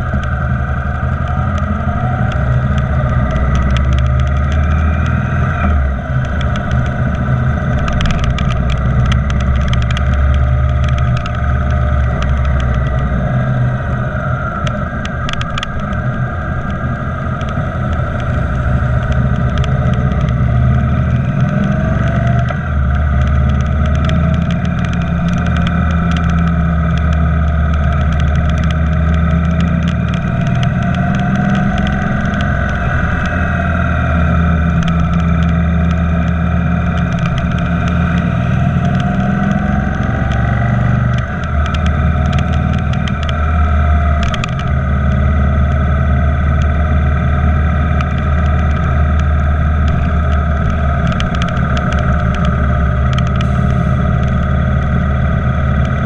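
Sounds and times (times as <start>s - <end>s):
motorcycle engine running: 0.0s - 56.0s
road noise: 0.0s - 56.0s.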